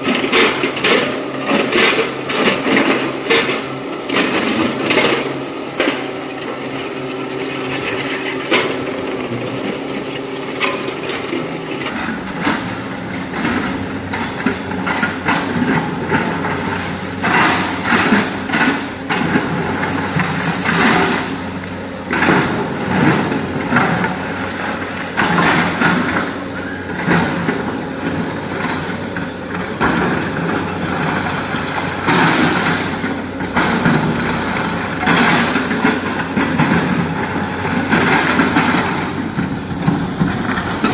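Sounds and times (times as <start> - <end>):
excavator diesel engine under load: 0.0 - 40.9.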